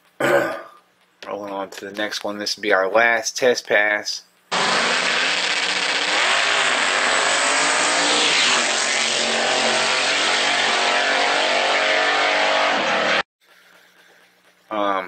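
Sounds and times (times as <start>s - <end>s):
drag car engine at full throttle: 4.5s - 13.2s.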